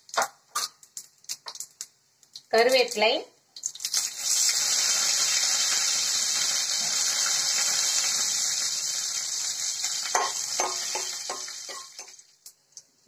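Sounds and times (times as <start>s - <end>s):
leaves sizzling in hot oil: 2.5s - 12.6s.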